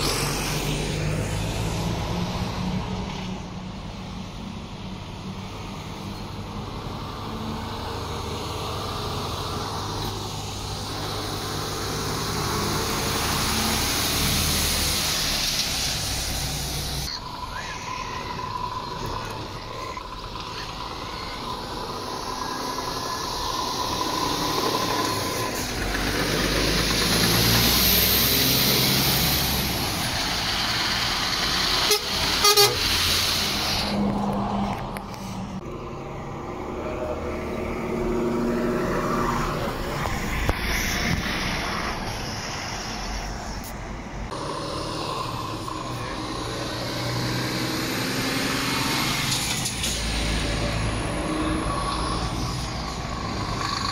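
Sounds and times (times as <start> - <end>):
heavy lorries driving past: 0.0 - 53.9
horn toots: 31.8 - 33.1.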